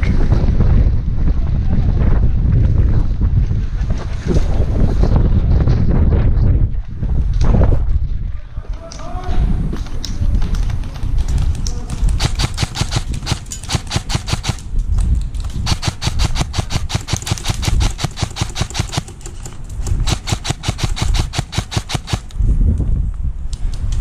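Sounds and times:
airsoft rifle firing full auto: 12.2 - 14.6, 15.6 - 22.3.

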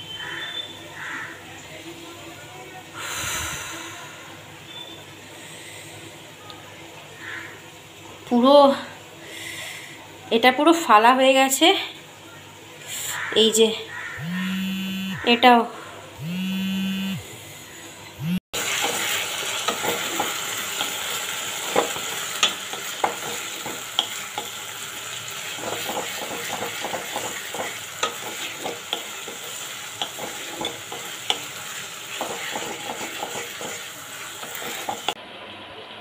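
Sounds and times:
short steady hum: 14.0 - 18.4
onions sizzling in oil: 17.2 - 36.0
spatula scraping pan: 25.5 - 35.2.

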